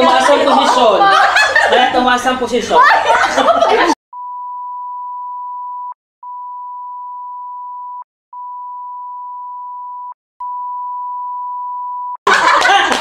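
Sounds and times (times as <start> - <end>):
censor beep tone: 4.2 - 12.2.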